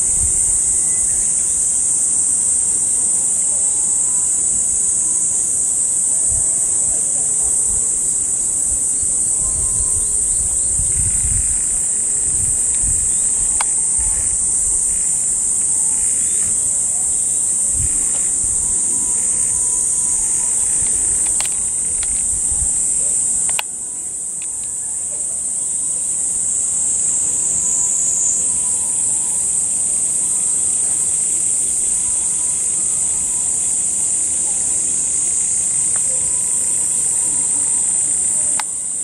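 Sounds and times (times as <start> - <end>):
insects chorus: 0.0 - 39.0
faint clicks: 12.7 - 14.4, 20.2 - 22.3, 23.2 - 23.7, 38.4 - 38.7.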